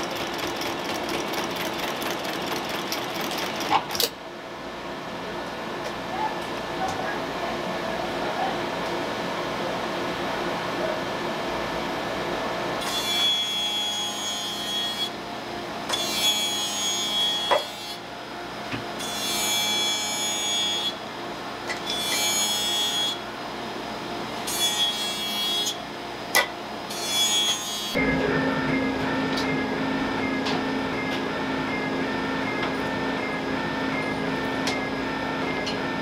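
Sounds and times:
machinery humming: 0:27.7 - 0:36.0
thin ringing tone: 0:28.0 - 0:34.5.

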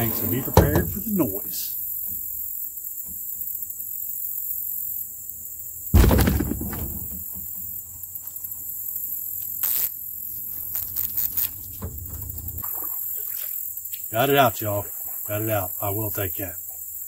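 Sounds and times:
insects buzzing: 0:00.0 - 0:17.0
canoe hull thumping bank: 0:06.0 - 0:07.2.

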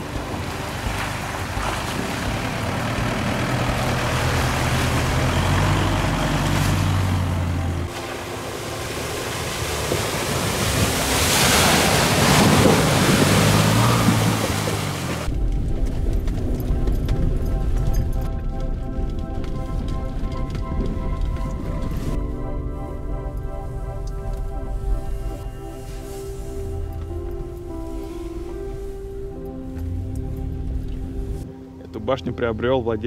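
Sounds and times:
engine running low: 0:00.0 - 0:32.0
wind noise: 0:09.0 - 0:29.3.

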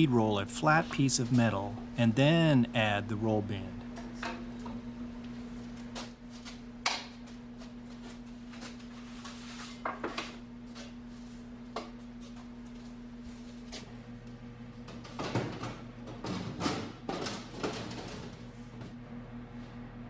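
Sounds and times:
steady machine hum: 0:00.0 - 0:08.9.

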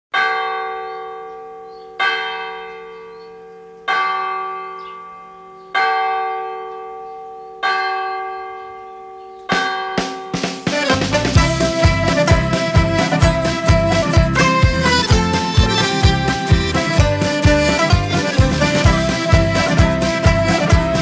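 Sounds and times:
music with quick sharp strokes: 0:10.4 - 0:21.0
bell tolling: 0:14.3 - 0:20.9.

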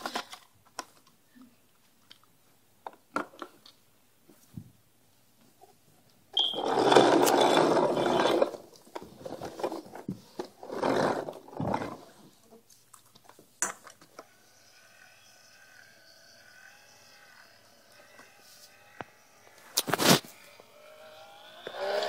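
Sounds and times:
toy truck rough rushing noise: 0:06.5 - 0:12.3, 0:14.0 - 0:22.0.

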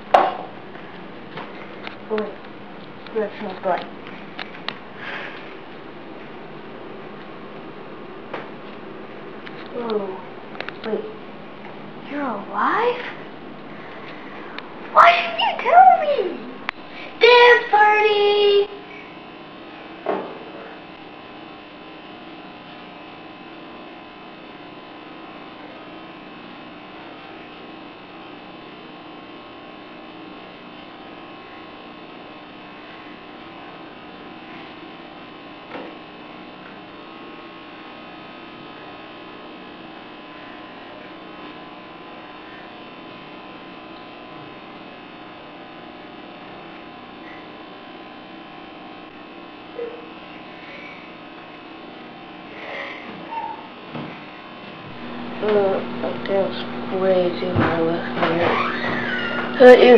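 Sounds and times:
faint steady hum: 0:00.0 - 0:59.9.

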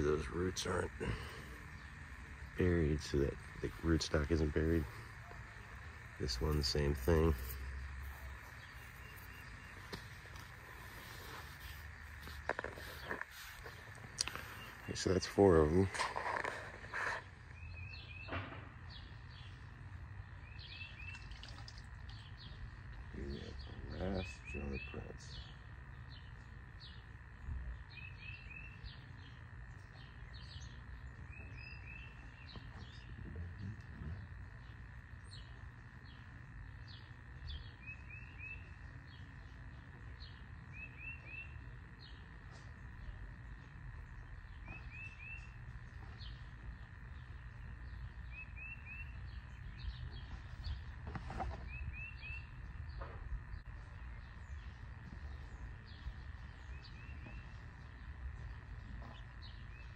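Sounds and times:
bird chirping phrase: 0:00.0 - 0:59.9
other birds chirping: 0:00.0 - 0:59.9
hands rustling soil in pot: 0:08.9 - 0:14.6.

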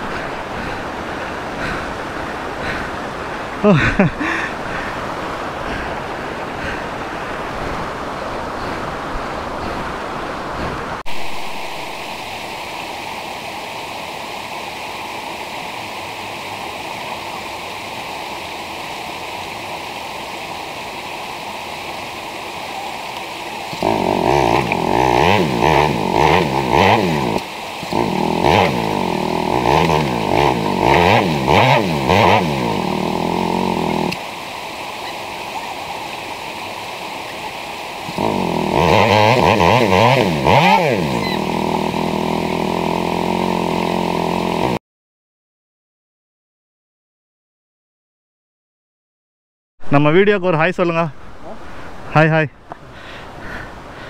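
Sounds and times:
running water: 0:00.0 - 0:44.7
motorcycle engine revving: 0:23.7 - 0:34.2, 0:38.1 - 0:44.8.

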